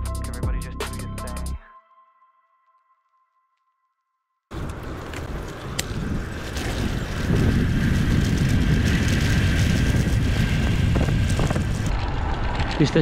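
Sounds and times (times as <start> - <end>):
wind buffeting microphone: 4.5 - 13.0.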